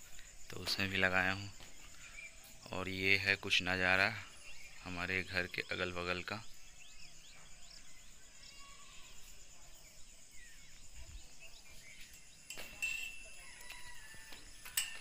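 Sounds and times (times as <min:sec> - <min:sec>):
birds chirping: 0:00.0 - 0:15.0
high insect drone: 0:00.0 - 0:15.0.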